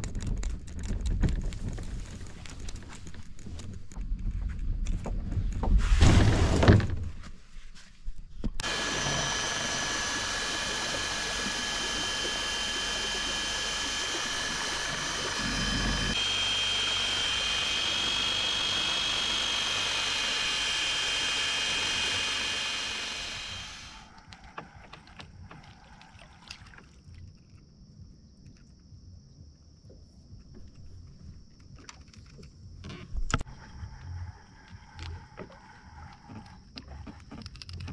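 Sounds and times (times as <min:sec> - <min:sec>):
electric motor whining: 0:08.6 - 0:25.0, 0:32.9 - 0:37.9.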